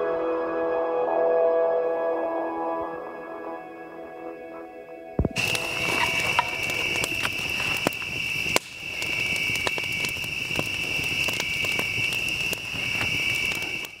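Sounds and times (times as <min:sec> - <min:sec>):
campfire crackling and popping: 0:05.2 - 0:14.0.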